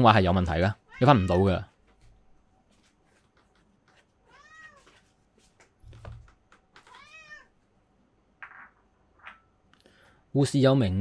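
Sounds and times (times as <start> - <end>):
cat meowing faintly: 0.8 - 1.7, 4.2 - 5.0, 6.8 - 7.5.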